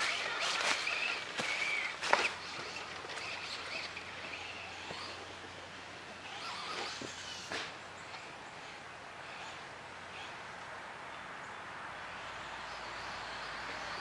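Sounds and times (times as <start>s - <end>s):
toy truck motor whine: 0.0s - 7.6s.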